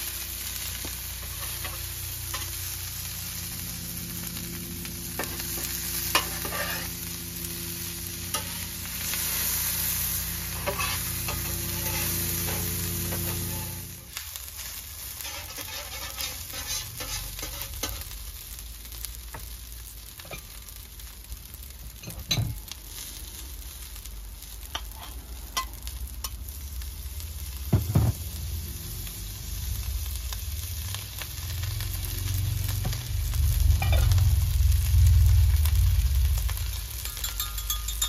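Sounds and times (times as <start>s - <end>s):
food sizzling on a griddle: 0.0s - 38.0s
metal spatula scraping steel: 5.2s - 7.1s, 10.5s - 13.9s, 14.6s - 18.1s, 33.8s - 34.1s
low rumble: 28.3s - 37.2s.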